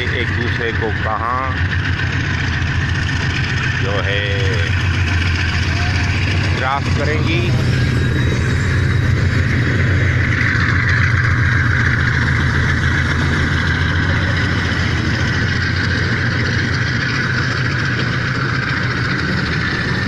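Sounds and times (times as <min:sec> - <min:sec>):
diesel locomotive engine rumble: 0:00.0 - 0:20.0
train rushing over rails: 0:00.0 - 0:20.0.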